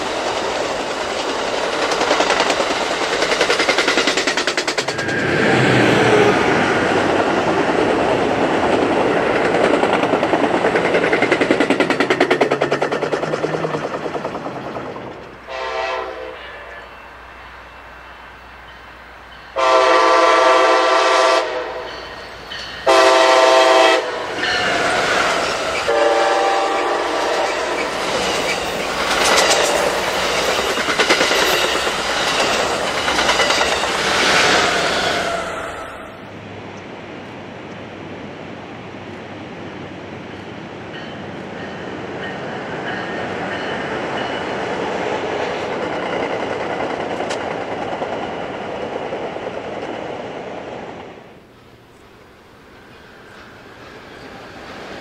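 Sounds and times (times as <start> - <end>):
wheels clicking over rails: 0.0 - 5.4, 7.0 - 15.4, 27.8 - 34.8
distant train rumble: 0.0 - 55.0
train engine and wheel noise: 0.0 - 55.0
train horn blast: 15.4 - 17.1, 19.6 - 22.1, 22.8 - 24.6, 25.8 - 27.9.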